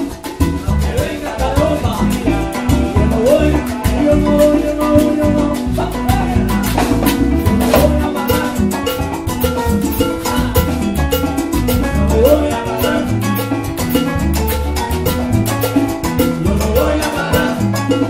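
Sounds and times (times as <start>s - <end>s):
congas: 0.0s - 18.0s
salsa band playing: 0.0s - 18.0s
man singing: 0.6s - 9.0s, 10.0s - 11.0s, 11.8s - 13.6s, 16.4s - 18.0s.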